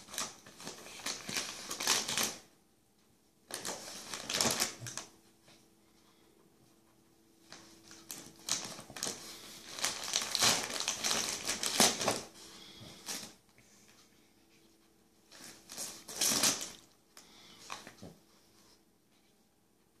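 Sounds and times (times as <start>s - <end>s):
wrapping paper crinkling and tearing: 0.0s - 2.5s, 3.5s - 5.1s, 7.5s - 13.4s, 15.3s - 16.9s.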